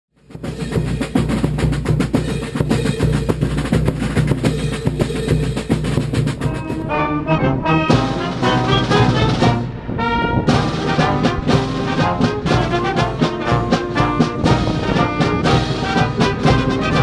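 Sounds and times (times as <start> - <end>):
brass band playing: 0.2 - 17.0
marching drum line: 0.2 - 17.0.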